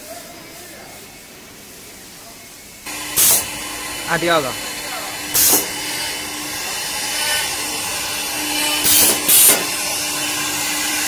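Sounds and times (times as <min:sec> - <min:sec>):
compressed air blasts: 0:02.9 - 0:11.0
drilling machine hissing: 0:02.9 - 0:11.0.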